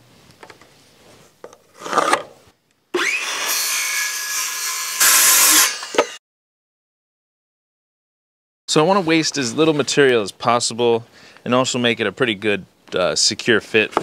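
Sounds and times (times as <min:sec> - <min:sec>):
circular saw cutting wood: 0:03.0 - 0:06.2.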